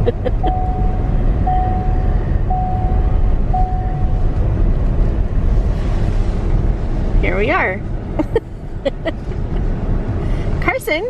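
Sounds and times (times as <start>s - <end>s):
car engine and tyres rumbling: 0.0s - 11.0s
car warning chime: 0.2s - 4.3s.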